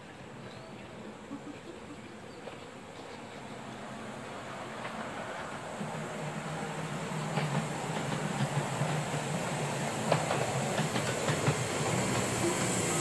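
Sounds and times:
miniature train rumbling: 0:00.0 - 0:13.0.

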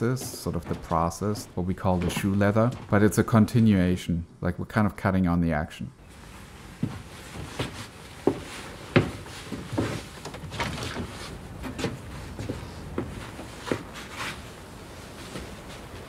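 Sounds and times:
wooden knocks and clunks: 0:00.0 - 0:03.8, 0:06.8 - 0:14.1.

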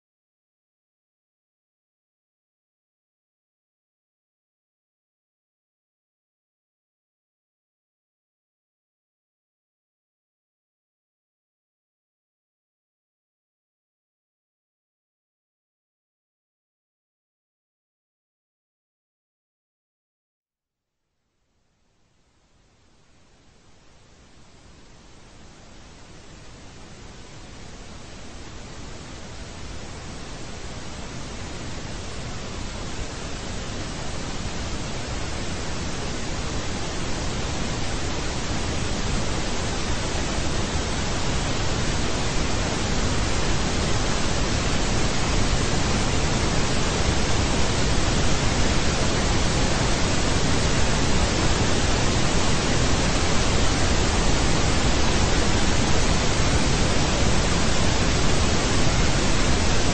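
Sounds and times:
television static hiss: 0:21.6 - 0:59.9.

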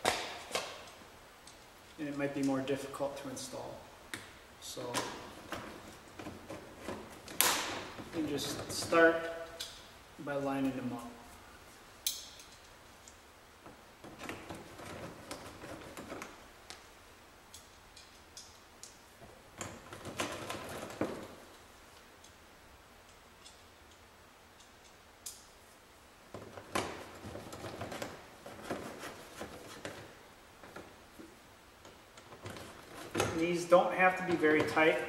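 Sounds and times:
plastic and screws rattling: 0:19.6 - 0:21.3.

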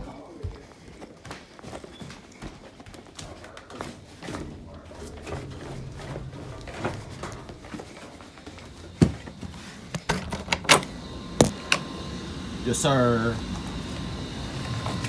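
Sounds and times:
footsteps going down stairs: 0:00.0 - 0:10.8.

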